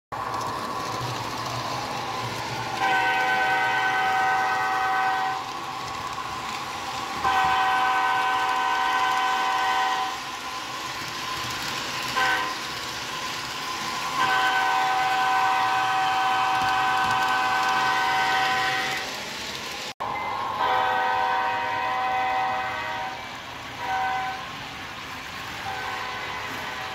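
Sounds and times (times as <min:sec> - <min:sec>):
model train horn blasts: 0:02.8 - 0:05.4, 0:07.2 - 0:10.2, 0:12.2 - 0:12.6, 0:14.2 - 0:19.1, 0:20.6 - 0:23.2, 0:23.8 - 0:24.5, 0:25.6 - 0:26.9.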